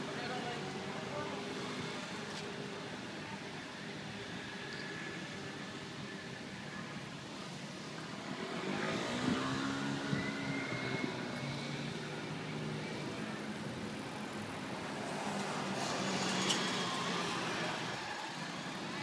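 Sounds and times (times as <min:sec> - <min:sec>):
bus driving past: 0:07.5 - 0:19.0.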